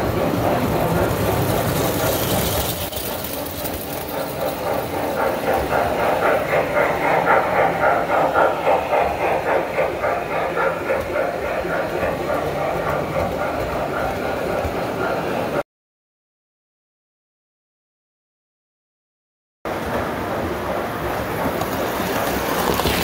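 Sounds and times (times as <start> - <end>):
toy train wheels clattering: 0.0 - 14.8, 21.1 - 23.0
toy train motors rumbling: 0.0 - 15.6, 19.7 - 23.0.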